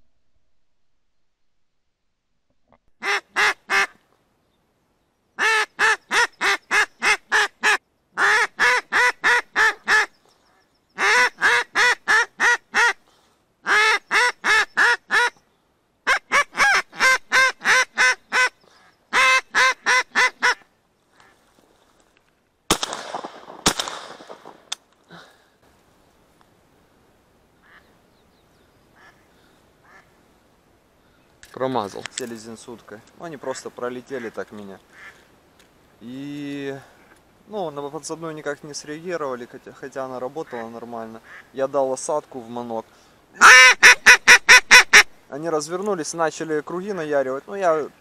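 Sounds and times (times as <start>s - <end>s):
duck call quacking: 3.0s - 4.0s, 5.4s - 10.1s, 11.0s - 13.0s, 13.6s - 15.4s, 16.0s - 21.4s, 29.0s - 29.2s, 29.8s - 30.1s, 43.4s - 45.1s
shotgun shots: 22.7s - 24.8s.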